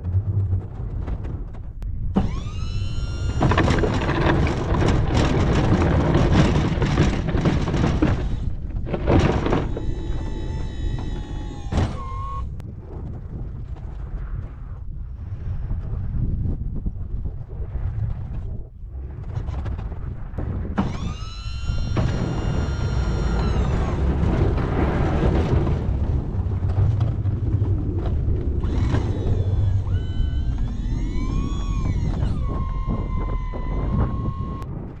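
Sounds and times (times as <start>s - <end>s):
heavy machine engine rumbling: 0.0s - 12.6s, 20.4s - 34.6s
whining tones: 0.0s - 12.6s, 20.8s - 34.7s.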